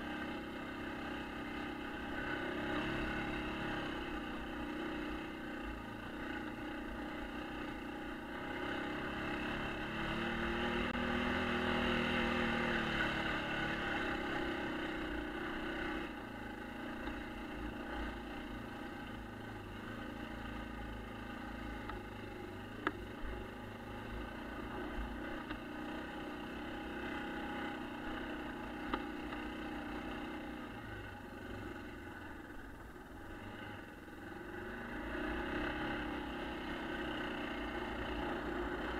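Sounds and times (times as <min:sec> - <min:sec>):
engine revving: 0:08.2 - 0:16.2.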